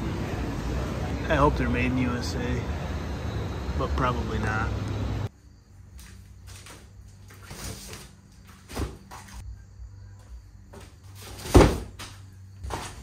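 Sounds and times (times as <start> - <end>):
boxes thudding on floor: 11.3 - 13.0.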